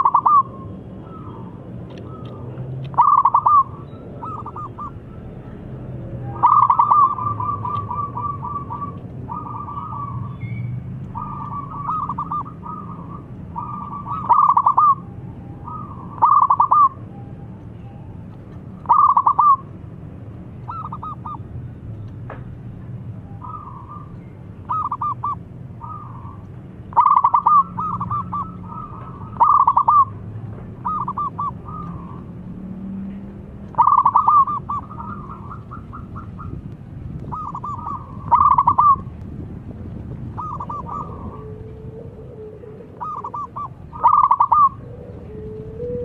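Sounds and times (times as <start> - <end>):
dove cooing: 0.0 - 5.4, 6.2 - 10.4, 11.0 - 17.0, 18.8 - 19.7, 20.7 - 21.4, 23.4 - 32.4, 33.7 - 36.6, 37.2 - 39.1, 40.3 - 46.0.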